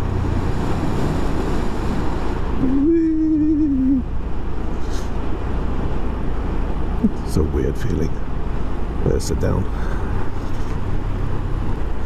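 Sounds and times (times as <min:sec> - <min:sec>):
short wavering hum: 0:00.0 - 0:05.2
wind rush on microphone: 0:00.0 - 0:07.5.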